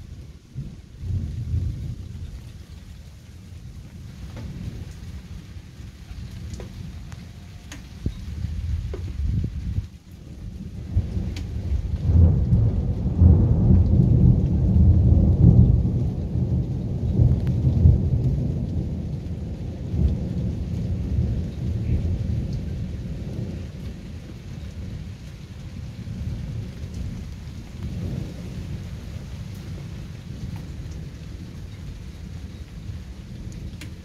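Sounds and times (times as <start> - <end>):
thunder rumbling: 0.0 - 34.0.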